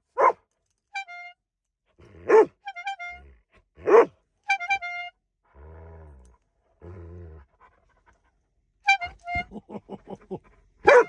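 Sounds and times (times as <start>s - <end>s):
dog barking: 0.1s - 0.4s, 2.2s - 2.6s, 3.8s - 4.2s
bulb bike horn honking: 0.9s - 1.4s, 2.6s - 3.3s, 4.4s - 5.1s, 8.9s - 9.6s
dog growling: 5.5s - 7.7s.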